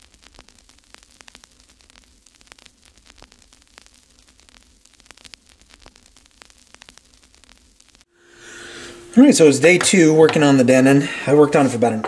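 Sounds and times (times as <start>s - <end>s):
static clicks: 0.0s - 8.1s
steady hiss: 0.0s - 12.0s.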